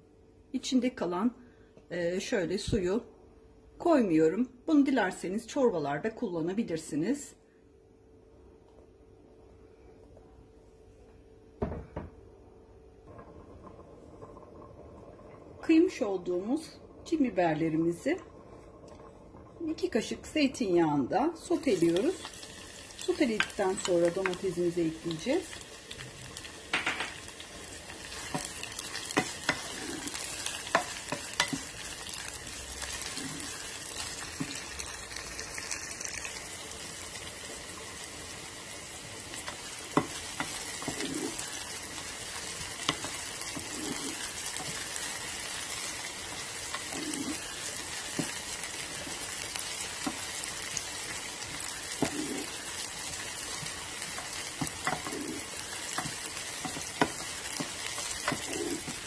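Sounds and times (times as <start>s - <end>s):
peppers sizzling in oil: 13.5s - 59.0s
wooden spoon scraping: 27.8s - 34.8s, 39.4s - 59.0s.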